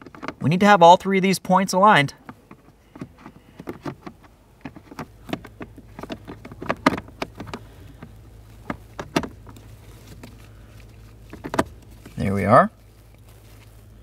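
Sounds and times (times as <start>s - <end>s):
plastic clicks and knocks: 0.0s - 0.4s, 2.2s - 10.4s, 11.2s - 12.2s
low steady hum: 0.0s - 14.0s.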